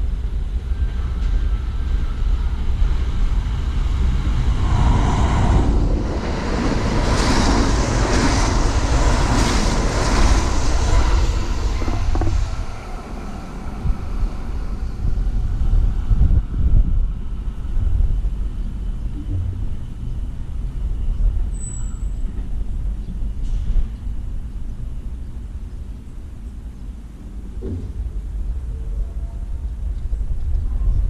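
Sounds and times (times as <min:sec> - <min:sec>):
electric train passing: 0:00.0 - 0:31.0
steady low rumble: 0:00.0 - 0:31.0
wheels clattering on rails: 0:06.6 - 0:13.3.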